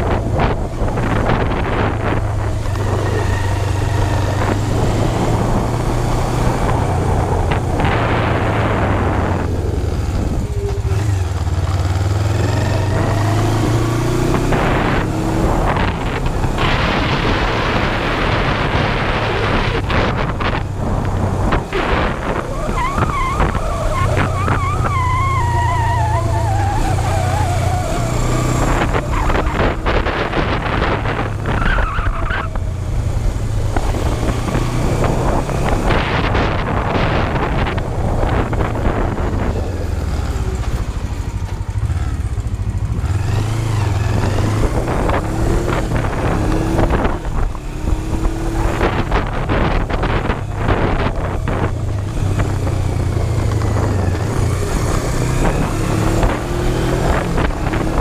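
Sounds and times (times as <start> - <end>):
motorcycle engine running: 0.0 - 58.0
wind rushing over microphone: 0.0 - 58.0.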